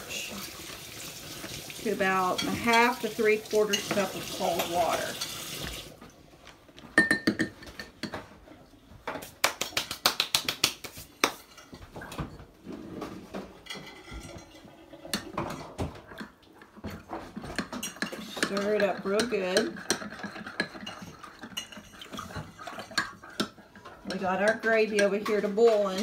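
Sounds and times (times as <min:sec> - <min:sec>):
spoon clinking against a container: 0:17.8 - 0:23.5.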